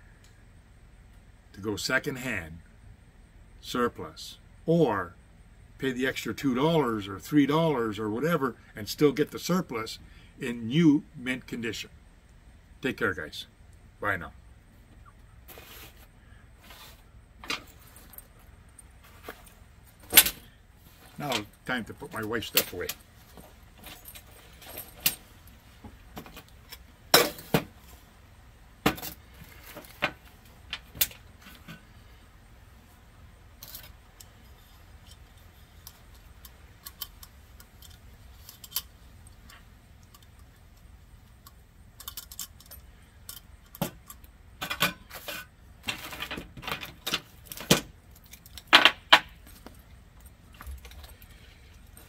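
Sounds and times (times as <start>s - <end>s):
cloth rustling: 15.5s - 18.2s.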